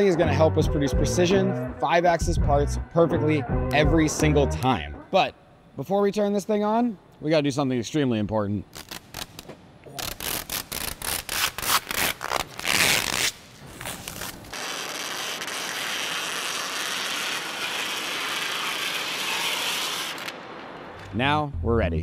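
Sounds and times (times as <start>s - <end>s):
plastic film peeling off glass: 8.7s - 20.3s.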